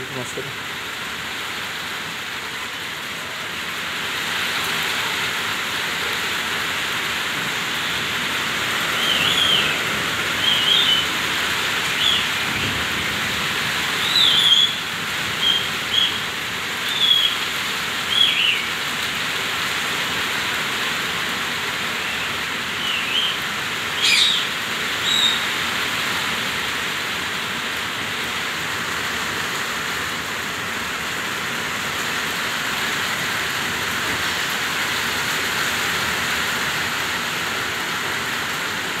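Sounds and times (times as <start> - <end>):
parakeet whistled chirps: 9.0 - 9.8, 10.4 - 11.1, 12.0 - 12.3, 14.0 - 14.8, 15.4 - 16.2, 16.9 - 17.4, 18.1 - 18.6, 24.0 - 25.4.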